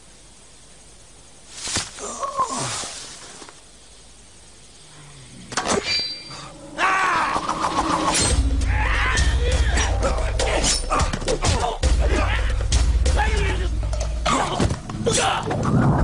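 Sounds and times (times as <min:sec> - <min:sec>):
dramatic music with deep bass: 0:07.6 - 0:15.4.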